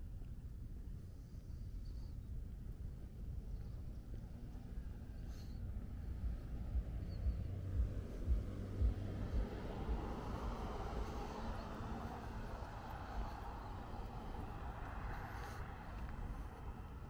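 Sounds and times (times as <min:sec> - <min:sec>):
low traffic rumble: 0:00.0 - 0:17.0
car passing: 0:04.8 - 0:17.0.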